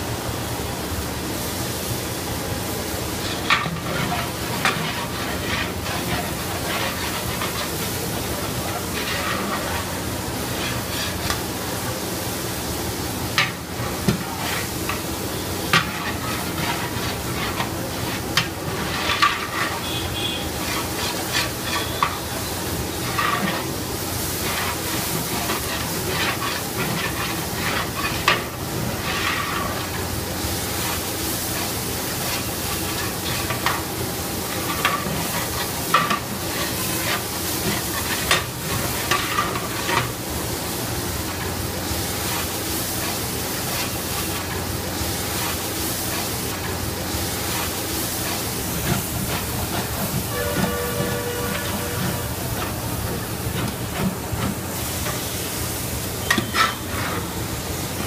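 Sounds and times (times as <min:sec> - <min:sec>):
spices sizzling in oil: 0:00.2 - 0:58.0
ladle clinking and scraping pot: 0:15.8 - 0:19.9, 0:56.2 - 0:57.2.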